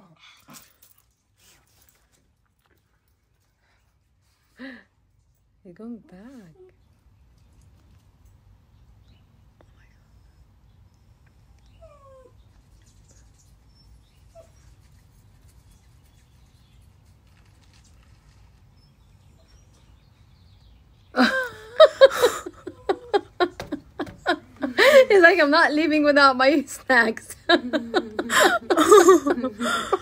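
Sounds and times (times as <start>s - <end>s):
person laughing loudly: 21.2s - 25.2s, 27.3s - 30.0s.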